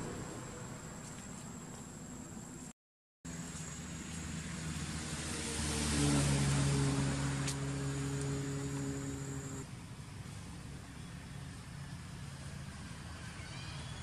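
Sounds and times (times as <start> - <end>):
vehicle engine running: 3.3 - 13.1.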